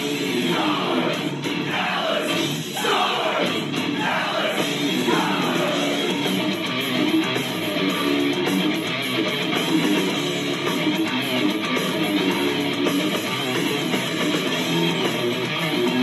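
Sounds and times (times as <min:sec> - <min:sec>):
rock song with electric guitar: 0:00.0 - 0:16.0.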